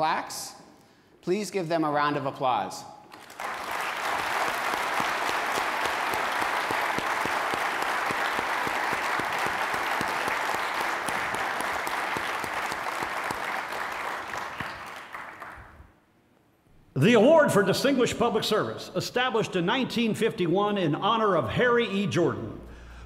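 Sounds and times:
audience applauding: 3.1s - 15.9s.

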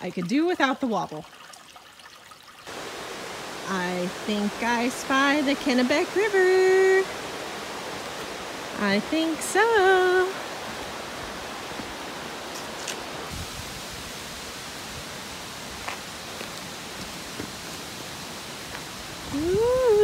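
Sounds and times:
river water rushing: 2.7s - 20.0s
footsteps on dirt trail: 15.7s - 17.9s
woman humming: 19.3s - 20.0s.

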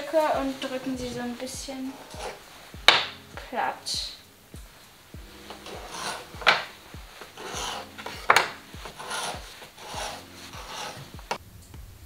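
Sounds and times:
knife sawing through dough: 1.9s - 2.4s, 5.4s - 11.4s
knife knocking on wooden board: 7.6s - 10.1s.

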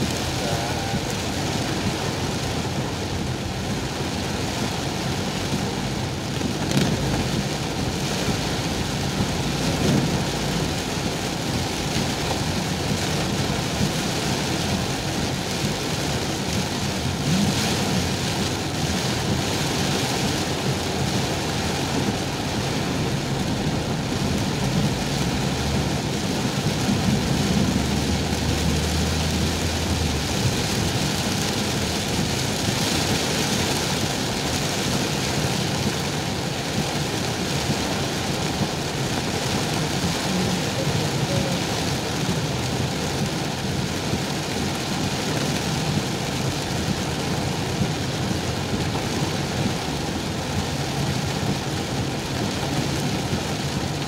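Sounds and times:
car running noise: 0.0s - 54.0s
heavy rain on car roof: 0.0s - 54.0s
low rumble: 21.5s - 32.4s.

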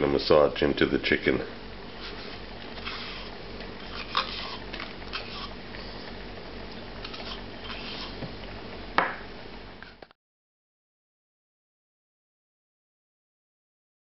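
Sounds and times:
steady low hum: 0.0s - 10.1s.

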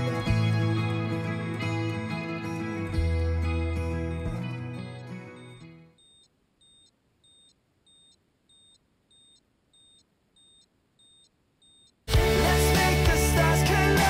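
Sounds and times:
music: 0.0s - 5.9s, 12.1s - 14.0s
faint high electronic beeps: 5.1s - 12.0s.

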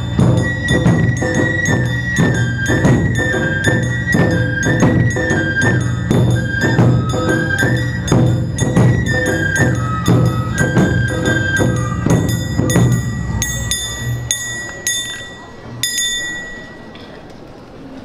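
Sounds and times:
drums beating: 0.0s - 16.4s
melody: 0.0s - 17.0s
hand-held gong clangs: 12.1s - 17.0s.

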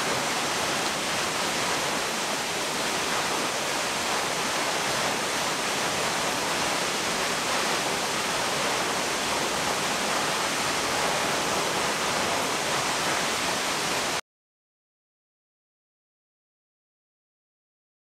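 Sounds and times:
waterfall rushing: 0.0s - 14.2s.

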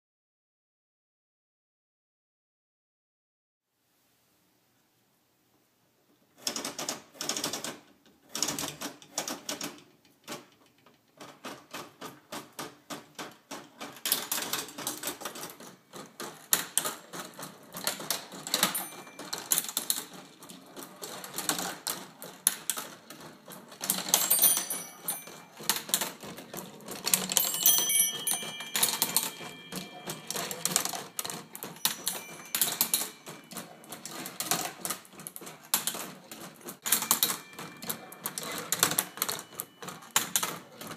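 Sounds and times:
wooden gears clattering: 6.4s - 40.9s
marbles rolling along tracks: 13.9s - 40.9s
metallic ringing tones: 18.6s - 19.6s, 24.0s - 26.0s, 27.0s - 34.4s, 36.8s - 40.2s.

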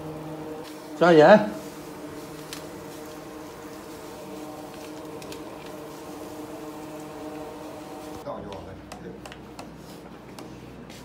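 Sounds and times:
machine hum: 0.0s - 8.2s.

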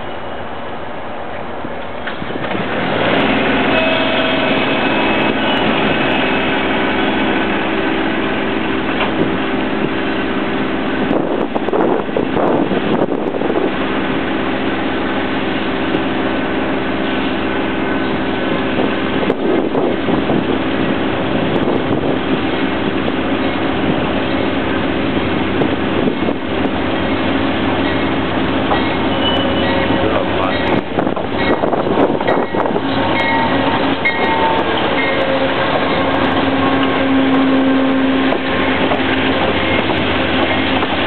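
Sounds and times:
diesel locomotive engine drone: 0.0s - 41.0s
faint high squeal: 29.0s - 30.0s.

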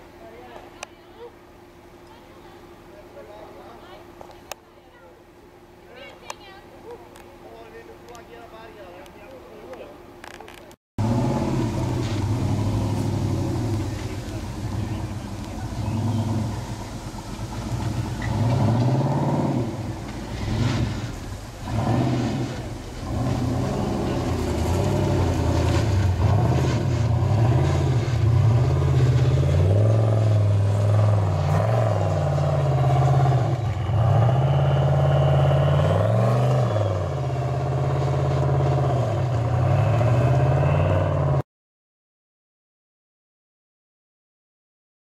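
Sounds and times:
buggy engine revving: 11.0s - 41.4s.

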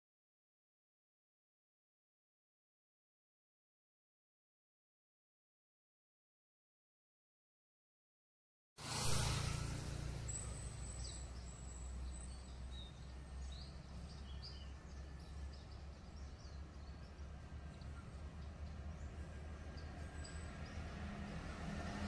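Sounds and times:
birds chirping: 9.4s - 21.5s.

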